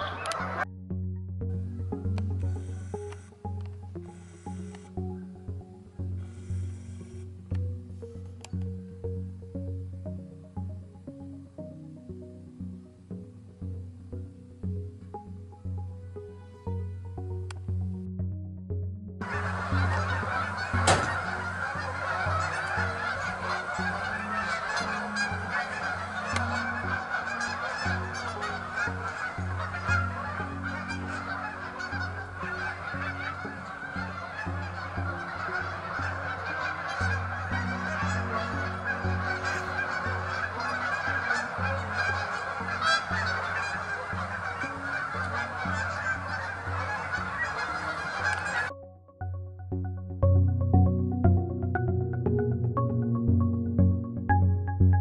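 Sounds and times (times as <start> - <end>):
geese honking: 0.0 - 0.8, 1.4 - 12.4, 19.2 - 48.8.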